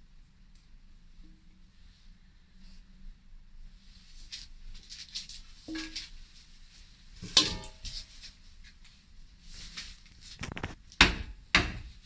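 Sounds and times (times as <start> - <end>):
metal bowl clanking down: 7.2 - 8.0.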